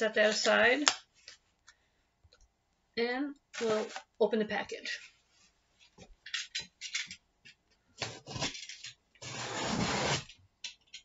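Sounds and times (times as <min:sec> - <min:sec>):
cardboard box rubbing and scraping: 0:09.2 - 0:10.3.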